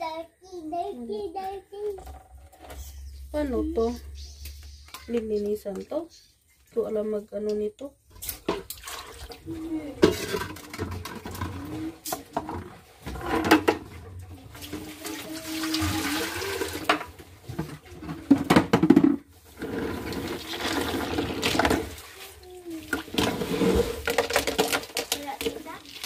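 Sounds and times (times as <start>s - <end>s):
water splashing into a basin: 8.1s - 26.0s.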